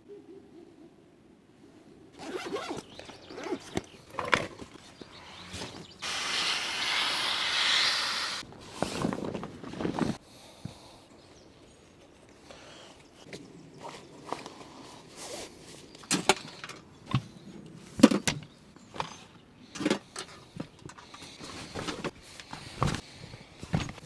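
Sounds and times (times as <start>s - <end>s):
zipper being drawn: 2.2s - 2.8s.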